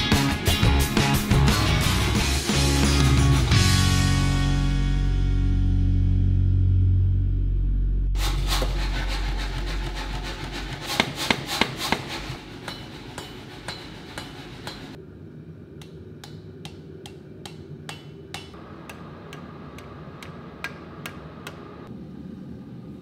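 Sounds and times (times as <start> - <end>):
background music: 0.0 - 11.0
hammer striking steel on anvil: 8.5 - 15.0, 15.8 - 21.7.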